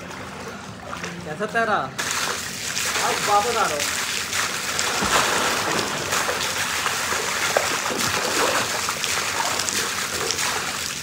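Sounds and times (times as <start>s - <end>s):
swimmer splashing water: 0.0s - 11.0s.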